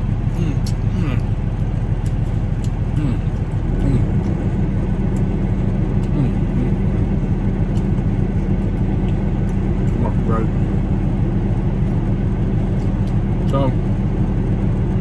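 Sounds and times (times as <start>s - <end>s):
truck engine idling: 0.0s - 15.0s
faint eating clicks: 0.5s - 1.3s, 1.9s - 4.4s.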